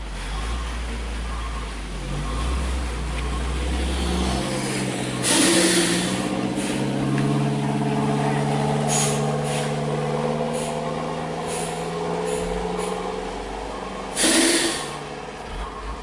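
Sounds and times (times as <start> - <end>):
diesel truck engine running: 0.0 - 16.0
short air hisses: 5.2 - 6.8, 8.9 - 9.7, 11.5 - 12.9, 14.2 - 14.9
air brake hiss: 5.2 - 6.9, 8.9 - 9.7, 11.5 - 13.0, 14.2 - 15.0.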